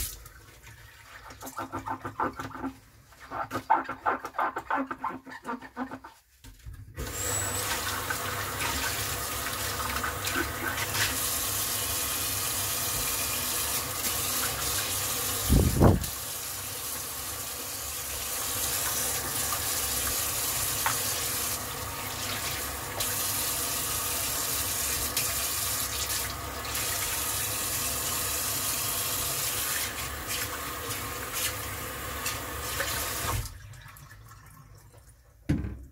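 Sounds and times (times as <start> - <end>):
faucet water running into sink: 7.0 - 35.2
dull thump: 35.5 - 35.9.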